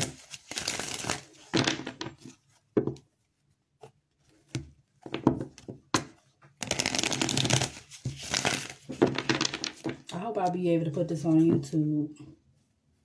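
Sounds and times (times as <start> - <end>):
cards shuffling and tapping: 0.0 - 3.1, 3.8 - 10.4.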